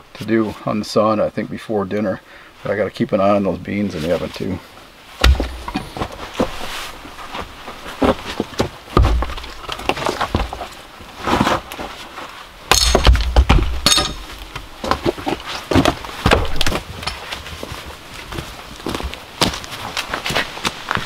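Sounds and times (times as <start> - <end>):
firewood knocking together: 5.2 - 6.5, 8.4 - 10.6, 12.7 - 17.2.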